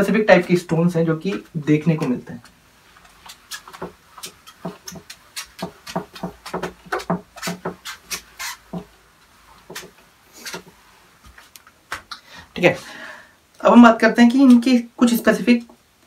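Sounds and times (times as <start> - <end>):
eraser rubbing across whiteboard: 2.8 - 11.0.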